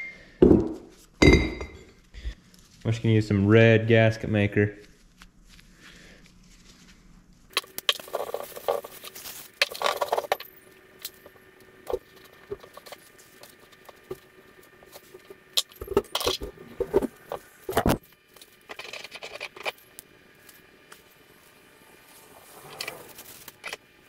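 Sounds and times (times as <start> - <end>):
gloves rustling: 4.8 - 10.3.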